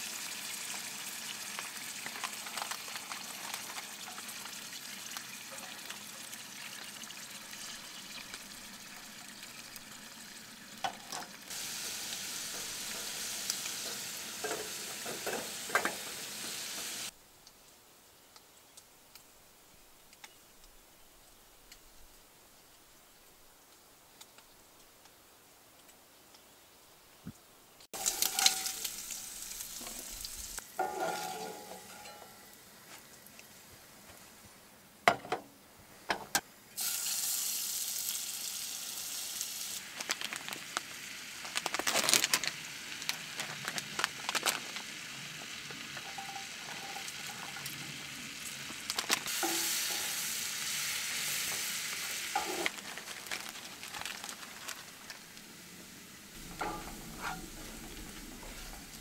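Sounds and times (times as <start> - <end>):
food sizzling in a pan: 0.0 - 17.2, 27.8 - 33.6, 36.8 - 59.0.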